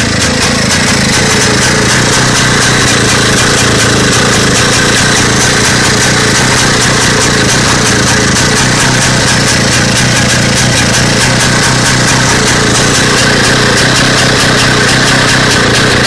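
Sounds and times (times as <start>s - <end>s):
two-stroke motorcycle engine running: 0.0s - 16.0s.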